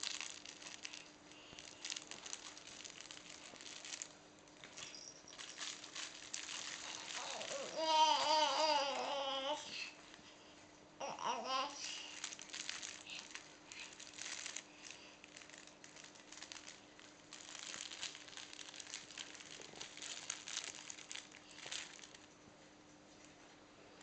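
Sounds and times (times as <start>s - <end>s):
fabric crinkle toy rustling: 0.0s - 10.6s, 11.4s - 22.4s
baby vocal sound: 6.8s - 10.0s, 11.0s - 12.2s.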